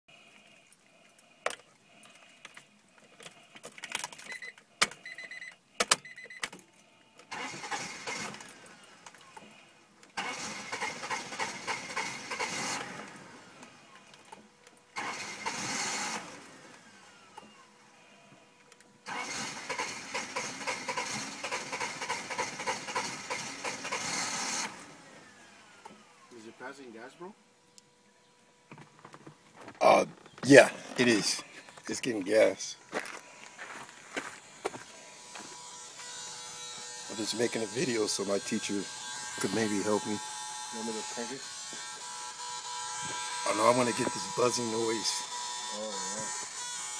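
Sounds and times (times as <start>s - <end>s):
car engine cranking: 7.2s - 17.7s, 18.7s - 26.1s.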